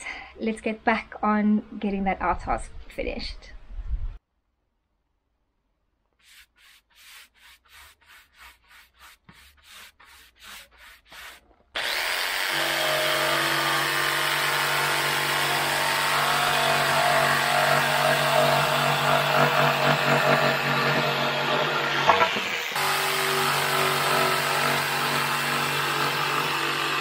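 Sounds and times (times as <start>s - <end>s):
rubbing strokes on wood: 6.1s - 11.4s
jigsaw cutting a board: 11.1s - 27.0s.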